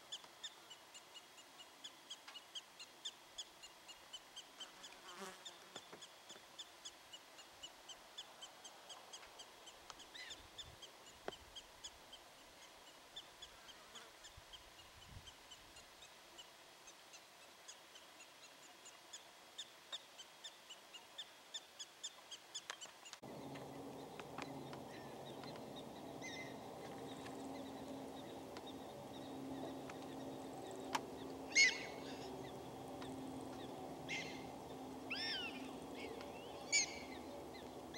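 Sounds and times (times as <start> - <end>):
prairie dogs chirping: 3.0 - 16.1, 17.1 - 37.9
steady low hum: 23.2 - 37.9.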